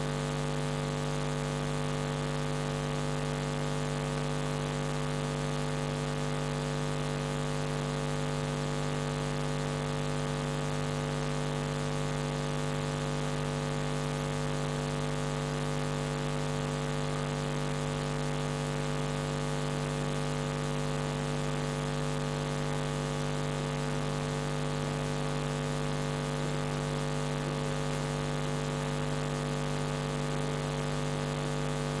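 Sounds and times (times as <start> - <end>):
low electrical hum: 13.3 - 32.0.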